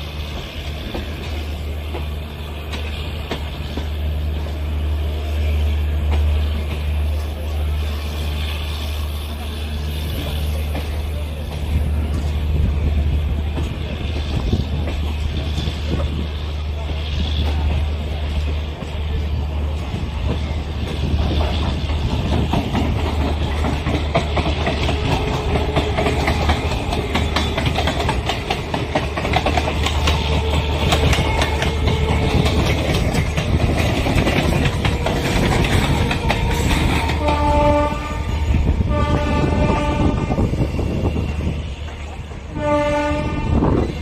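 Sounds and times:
wheels clacking over rail joints: 0.0s - 42.8s
train rumble: 0.0s - 44.0s
train horn blasts: 29.8s - 32.8s, 34.7s - 41.2s, 42.4s - 44.0s.

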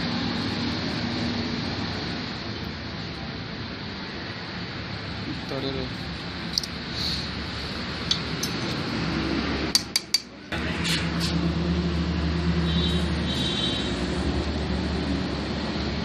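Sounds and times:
metal parts clinking: 8.1s - 8.8s.

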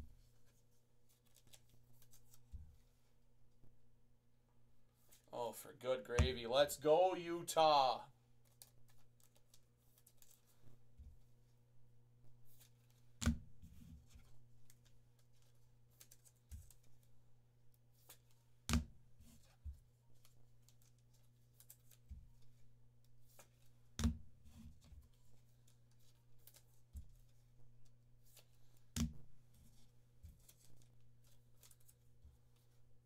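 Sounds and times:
cards rustling: 0.2s - 3.0s, 6.2s - 10.7s, 14.0s - 17.1s, 19.2s - 22.6s, 24.6s - 27.5s, 28.2s - 32.8s.

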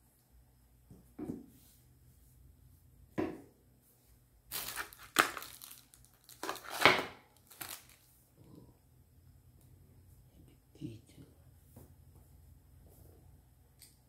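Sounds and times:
plastic packaging crinkling: 4.5s - 8.1s.

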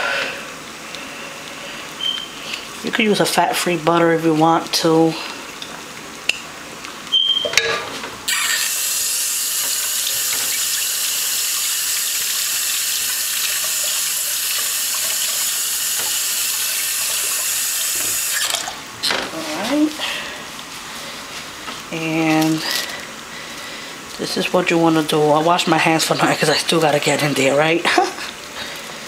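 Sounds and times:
tap water running: 8.1s - 19.8s.

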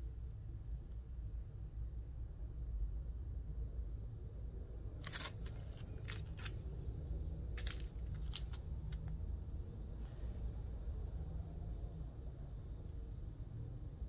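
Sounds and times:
low steady hum: 0.0s - 14.0s
plastic bags crinkling: 7.6s - 8.6s.

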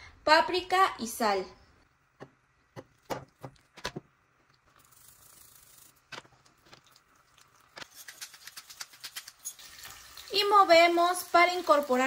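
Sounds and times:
utensils clicking and knocking: 7.7s - 9.6s.

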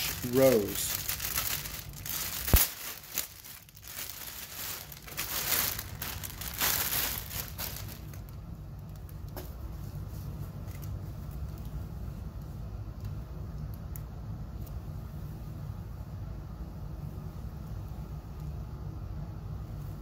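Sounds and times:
plastic bag crinkling: 0.0s - 9.2s.

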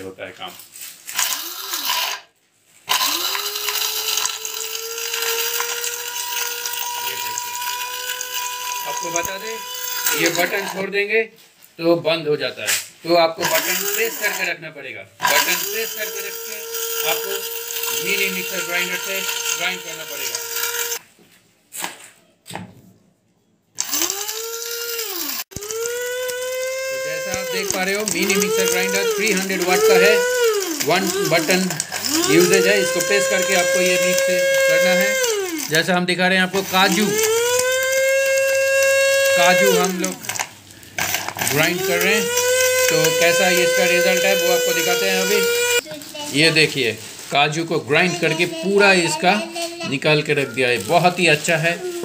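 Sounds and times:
nuts clattering in grinder: 1.1s - 2.2s, 2.9s - 11.0s, 13.4s - 14.5s, 15.2s - 21.0s, 23.8s - 36.0s, 36.6s - 45.8s
spice grinder motor whine: 1.1s - 11.0s, 13.4s - 14.6s, 15.2s - 21.0s, 23.8s - 45.8s, 46.4s - 52.0s.

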